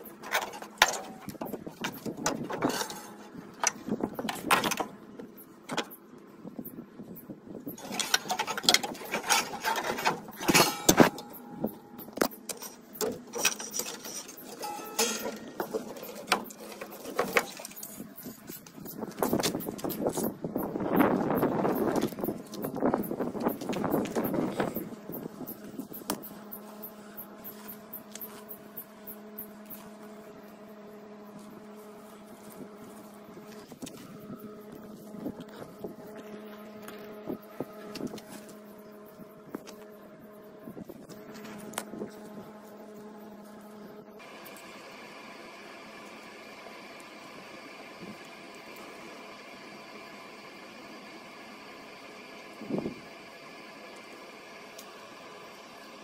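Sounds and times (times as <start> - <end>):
low mechanical hum: 0.0 - 56.0
wires and connectors rustling: 7.6 - 44.7.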